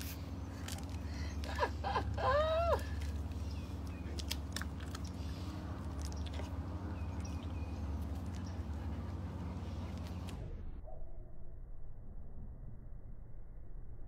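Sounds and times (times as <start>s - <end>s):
dog chewing crunchy treat: 0.0s - 1.5s, 2.8s - 10.4s
low background hum: 0.0s - 14.0s.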